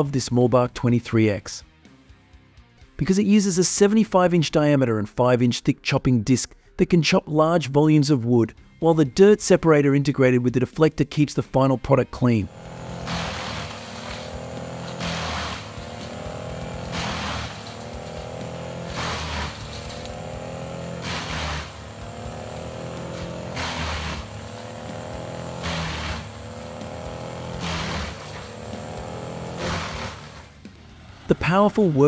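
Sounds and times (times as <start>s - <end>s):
heavy engine drone: 12.5s - 32.0s
wood chipper grinding wood: 12.5s - 32.0s.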